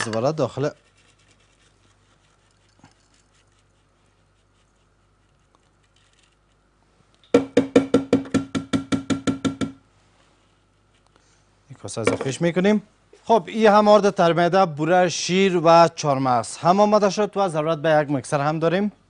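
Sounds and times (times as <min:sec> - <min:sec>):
sharp ringing knocks: 0:07.4 - 0:09.8.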